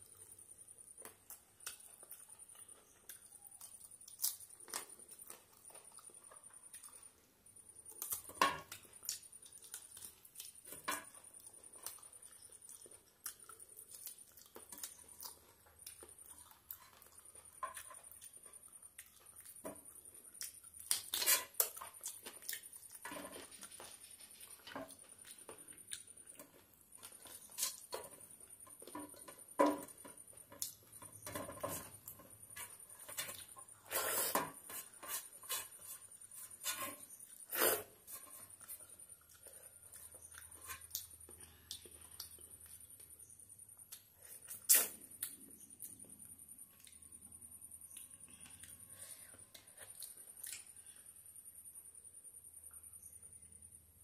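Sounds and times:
wet chewing and lip smacks: 49.5 - 51.0.

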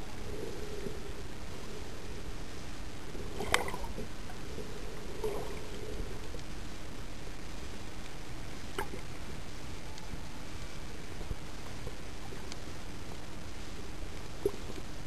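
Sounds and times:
underwater water hiss: 0.0 - 6.4.

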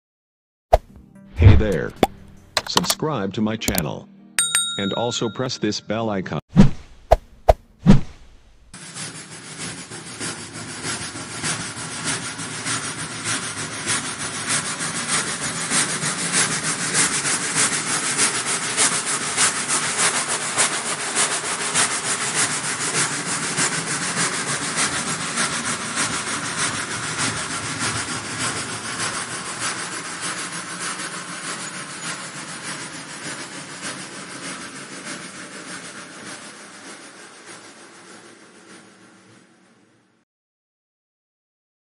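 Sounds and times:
steam train chugging: 8.8 - 40.2.

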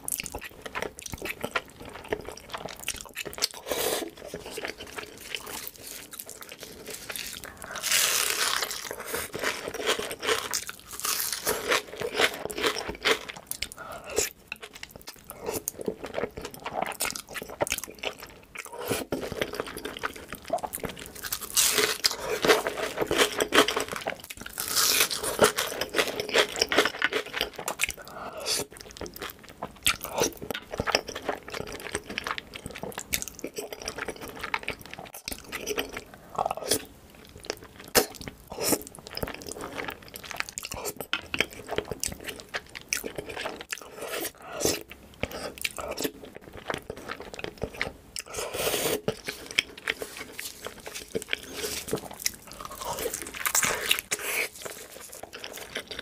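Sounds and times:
crunchy bites of fried food: 0.0 - 15.7, 16.6 - 35.7, 49.0 - 56.0
chewing: 0.0 - 56.0.

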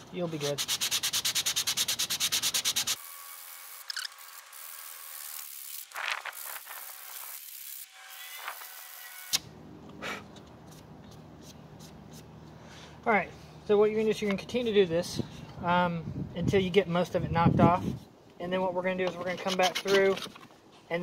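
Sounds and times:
sandpaper scratching plastic: 0.2 - 8.7, 18.9 - 20.5.

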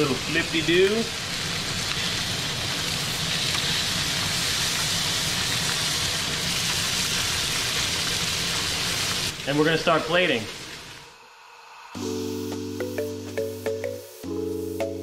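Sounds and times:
fish fillets sizzling in a pan: 0.0 - 11.1.

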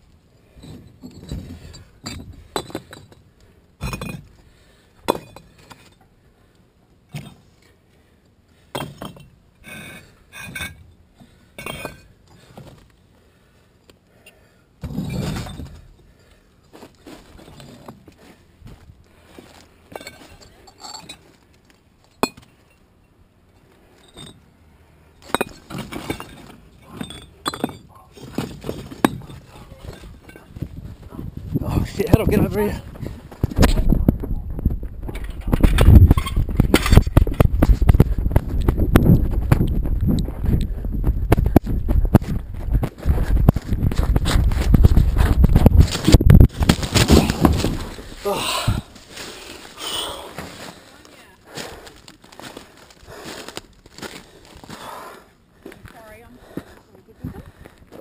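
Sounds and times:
concrete blocks knocking together: 0.7 - 4.3, 5.0 - 6.0, 8.7 - 12.8, 22.2 - 22.5, 25.2 - 30.7, 35.0 - 39.6, 41.3 - 48.9.

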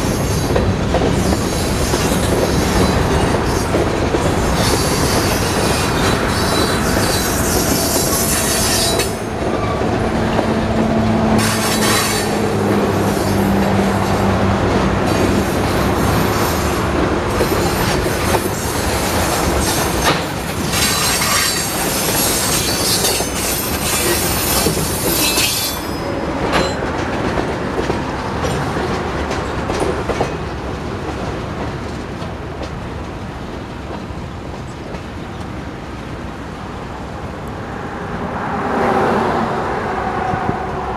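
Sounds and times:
train wheels rumbling on rails: 0.0 - 40.9
high-pitched wheel squeal: 20.8 - 26.8.

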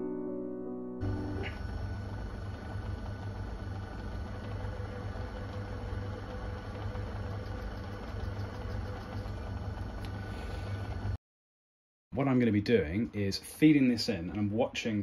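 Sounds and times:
metal lathe humming with whine: 1.0 - 11.2.

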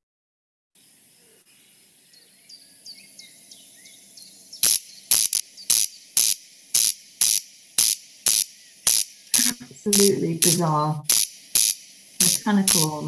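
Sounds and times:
faint bird chirps: 0.8 - 13.0
corncrake rasping call: 3.0 - 13.0.

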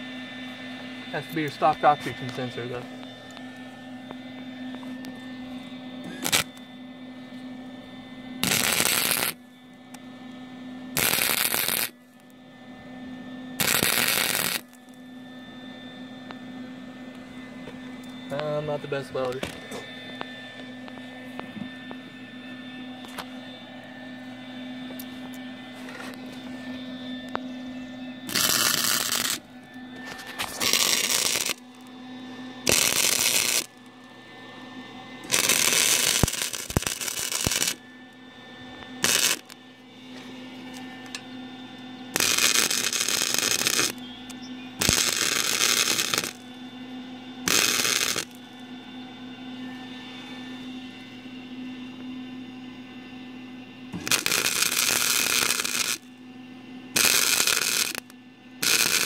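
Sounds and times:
steady welder hum: 0.0 - 59.0
welding arc crackling: 6.2 - 6.6, 8.4 - 9.4, 11.0 - 12.0, 13.6 - 14.9, 28.3 - 29.5, 30.4 - 31.9, 32.6 - 33.8, 35.2 - 37.8, 39.0 - 39.6, 42.1 - 44.0, 44.8 - 46.4, 47.5 - 48.4, 54.0 - 56.1, 57.0 - 59.0.

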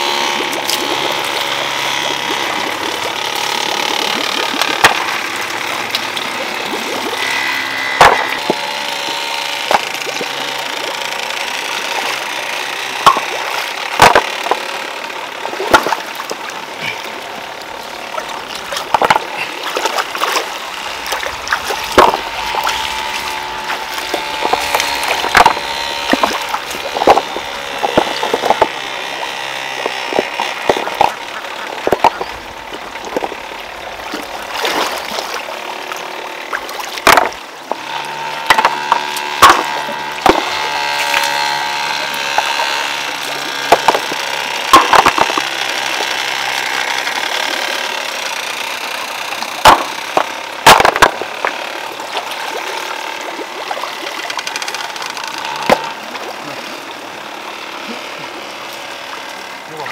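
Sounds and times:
low machine hum: 0.0 - 59.9
stones knocking together: 8.0 - 8.6, 14.0 - 14.6, 18.6 - 19.4, 21.0 - 23.4, 24.1 - 28.8, 31.8 - 32.4, 37.0 - 37.8, 38.5 - 40.6, 43.7 - 44.1, 44.7 - 45.5, 49.6 - 51.5.

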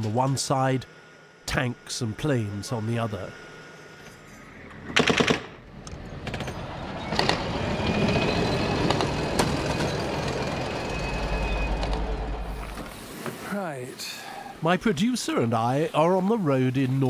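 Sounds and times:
armoured vehicle engine whine: 0.0 - 13.0
automatic gunfire: 5.0 - 5.6.

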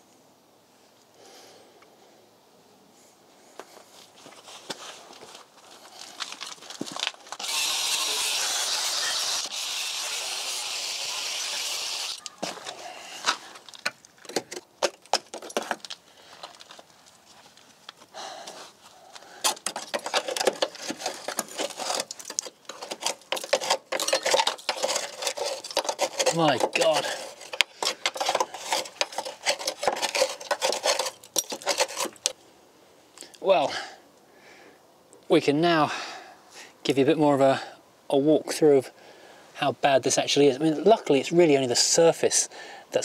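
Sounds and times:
debris rattling and scraping: 4.7 - 18.0, 19.4 - 32.4.

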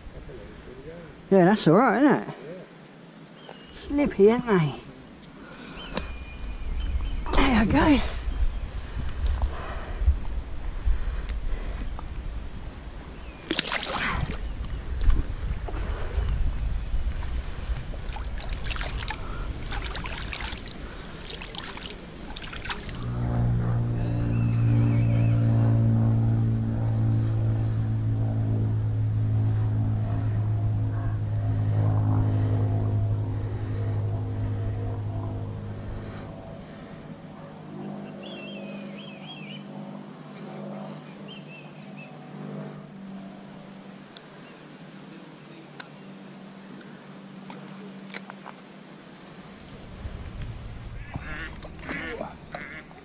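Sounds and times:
light wind: 0.0 - 53.0
engine drone: 3.7 - 53.0
motor humming: 22.1 - 39.2.

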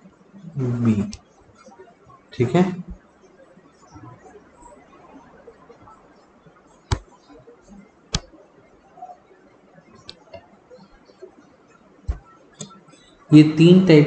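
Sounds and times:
low background hiss: 0.0 - 14.0.

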